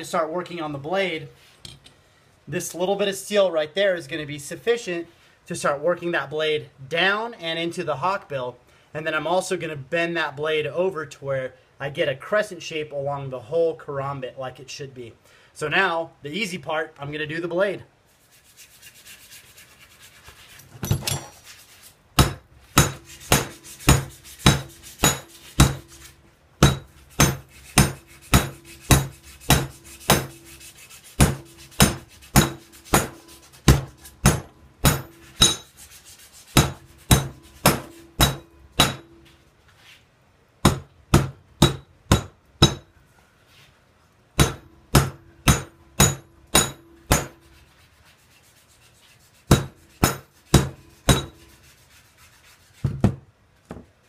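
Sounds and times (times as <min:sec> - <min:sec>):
hammer striking hot metal: 0:22.2 - 0:25.9, 0:26.6 - 0:30.6, 0:31.2 - 0:35.7, 0:36.6 - 0:39.2, 0:40.6 - 0:42.9, 0:44.4 - 0:47.4, 0:49.5 - 0:51.4
metal ringing: 0:34.1 - 0:35.7, 0:37.1 - 0:39.3, 0:44.4 - 0:47.4.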